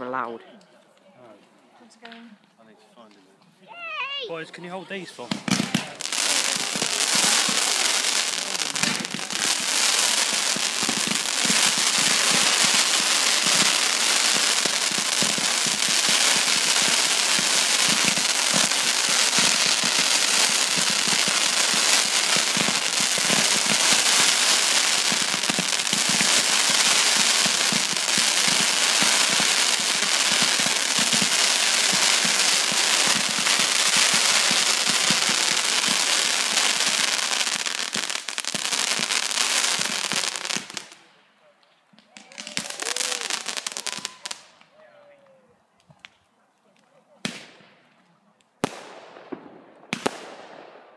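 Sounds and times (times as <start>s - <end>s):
firework hissing and crackling: 5.1s - 41.1s, 42.1s - 44.5s.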